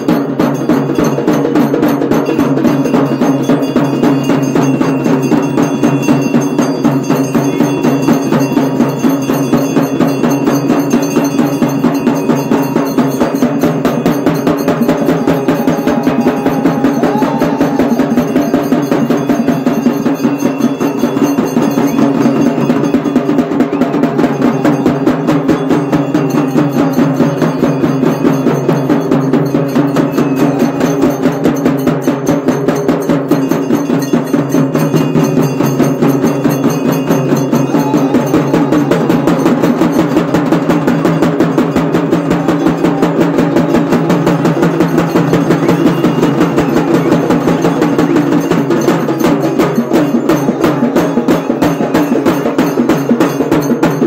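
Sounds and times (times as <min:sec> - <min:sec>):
fast drumming: 0:00.0 - 0:54.0.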